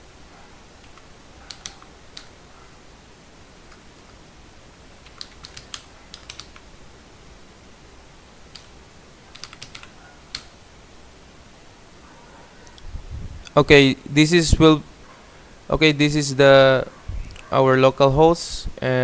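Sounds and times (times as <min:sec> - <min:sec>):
keyboard key clicks: 0:00.8 - 0:02.3, 0:05.0 - 0:06.7, 0:09.3 - 0:10.5.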